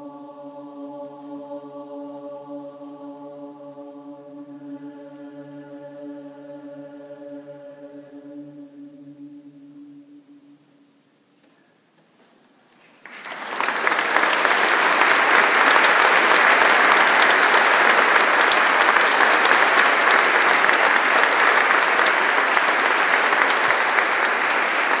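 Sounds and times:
audience applause: 13.0s - 25.0s.

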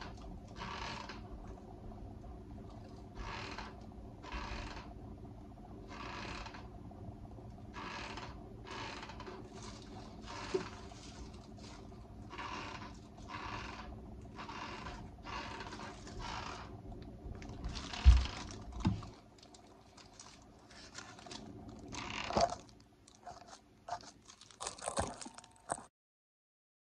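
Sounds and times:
scratchy handling rustles: 9.4s - 13.4s, 17.6s - 25.9s.

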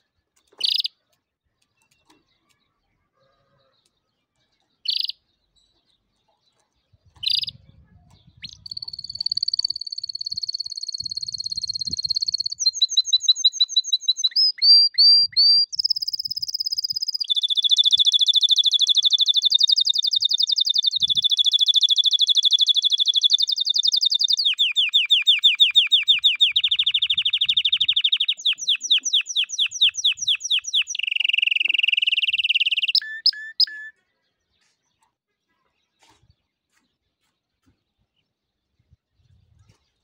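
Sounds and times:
canary singing trills: 0.0s - 1.0s, 3.6s - 34.0s.

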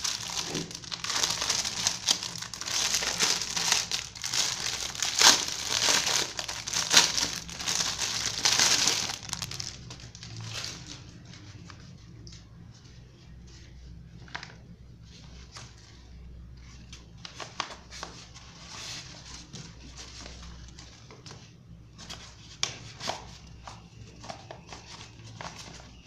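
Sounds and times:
cloth bag rustling: 0.0s - 9.8s
faint low hum: 0.0s - 26.0s.

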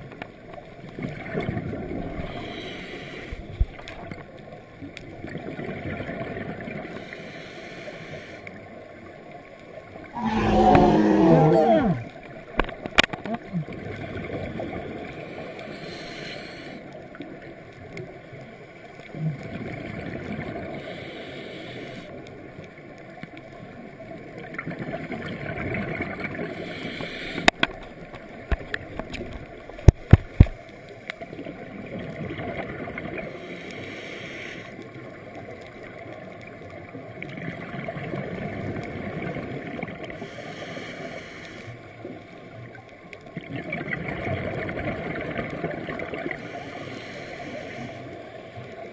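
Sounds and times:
steady watery hiss: 1.2s - 4.2s, 6.2s - 10.4s, 13.6s - 24.1s, 25.6s - 31.8s, 32.5s - 36.8s, 39.6s - 42.8s, 44.6s - 48.9s
exhaled bubbles gurgling: 10.2s - 12.2s, 43.4s - 46.8s.

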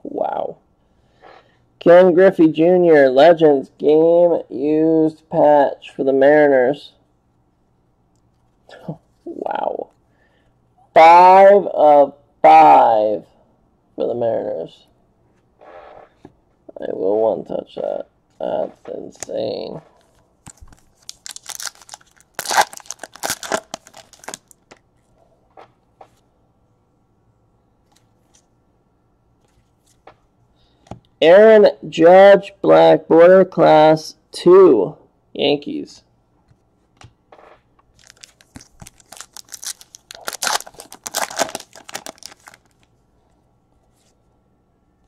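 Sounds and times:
foil wrapper tearing and crinkling: 20.5s - 24.6s, 37.9s - 42.9s.

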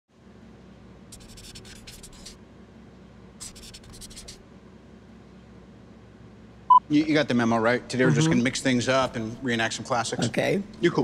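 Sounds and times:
pen scratching on a surface: 1.1s - 2.4s, 3.4s - 4.4s.

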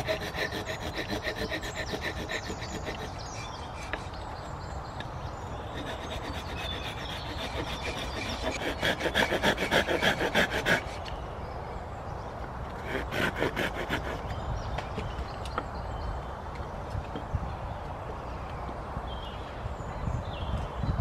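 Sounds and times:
hand tool working wood: 0.0s - 4.6s, 5.5s - 11.1s, 12.8s - 15.1s.

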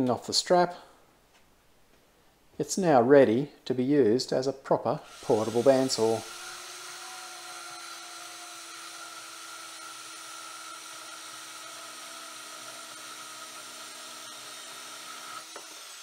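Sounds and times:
bandsaw cutting steel tube: 5.1s - 16.0s.

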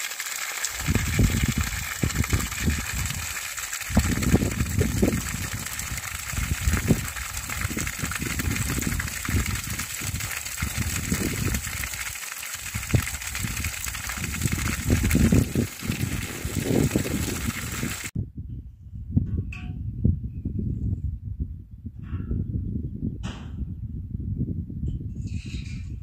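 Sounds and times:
water splashing into trough: 0.0s - 18.1s.

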